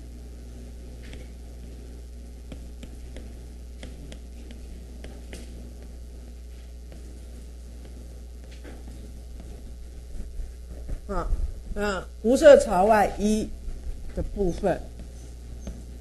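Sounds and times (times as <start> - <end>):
low electrical hum: 0.0 - 16.0
writing on a board: 2.5 - 6.0, 6.8 - 11.0.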